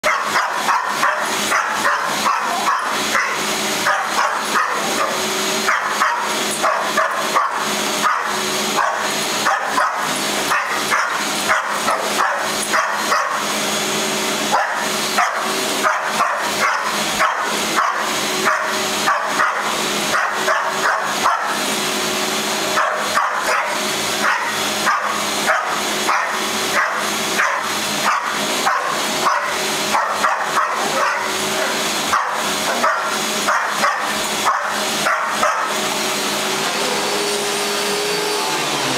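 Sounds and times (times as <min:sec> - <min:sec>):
dog barking: 0:00.0 - 0:13.5, 0:14.5 - 0:21.6, 0:22.7 - 0:36.0
vacuum cleaner humming: 0:00.0 - 0:38.9.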